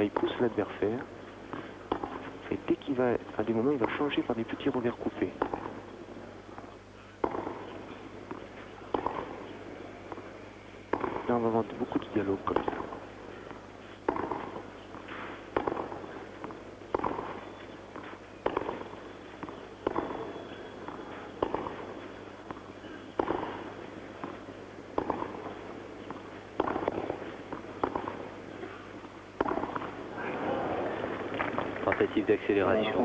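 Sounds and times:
tennis ball hit by rackets: 1.5 - 2.3, 3.5 - 4.8, 5.4 - 5.9, 7.2 - 10.2, 10.9 - 11.4, 12.2 - 30.1.

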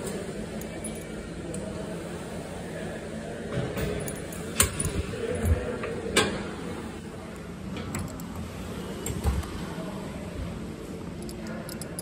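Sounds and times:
sharp metal clicks: 11.2 - 12.0.

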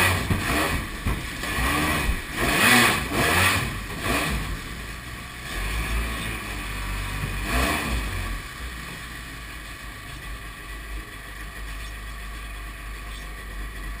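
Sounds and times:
jet-ski engine running: 0.0 - 14.0.

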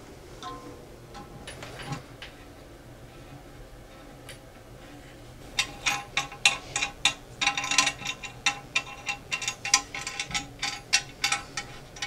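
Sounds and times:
wing nuts clicking: 5.6 - 12.0.

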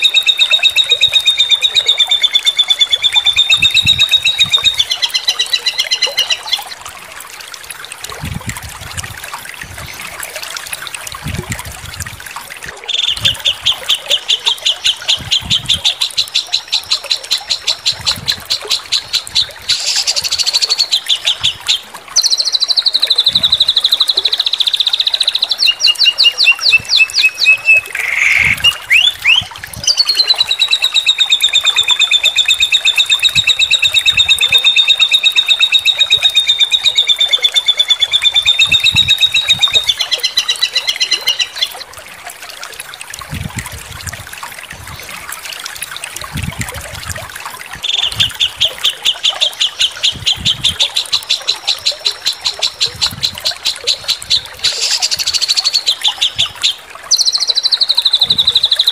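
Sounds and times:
songbird trilling: 0.0 - 6.7, 12.9 - 41.8, 47.8 - 58.9.

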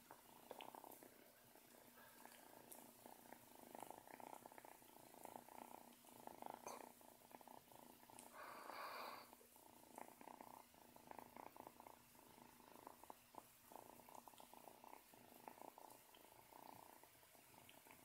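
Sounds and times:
kitten purring: 0.0 - 18.0.

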